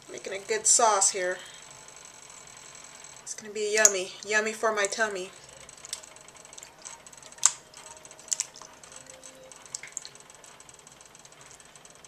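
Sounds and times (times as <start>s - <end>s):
wet squelching: 5.8s - 8.9s, 9.7s - 10.2s
hands squishing tomatoes: 6.6s - 8.8s.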